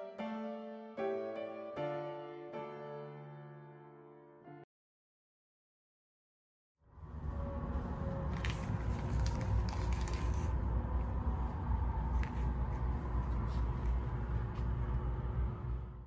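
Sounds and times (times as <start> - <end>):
low room rumble: 6.9 - 16.0.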